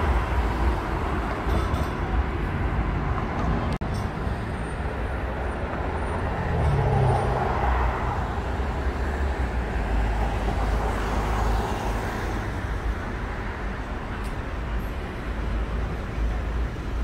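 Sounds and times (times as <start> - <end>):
cars driving past: 0.0 - 17.0.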